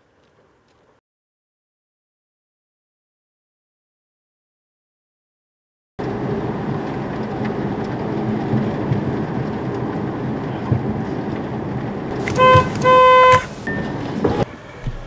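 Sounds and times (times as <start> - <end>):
car road and engine noise: 6.0 - 15.0
collision warning beeps: 12.2 - 14.0.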